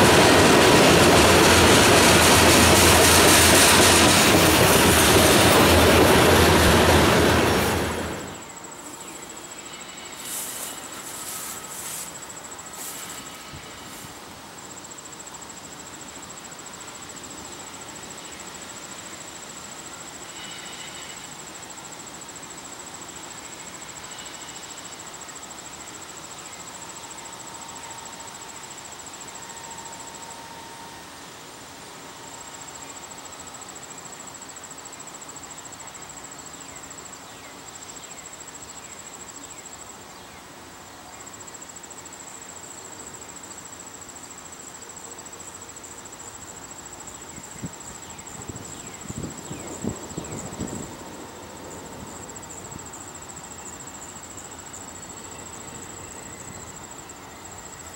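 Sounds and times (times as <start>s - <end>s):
insects trilling: 0.0s - 57.9s.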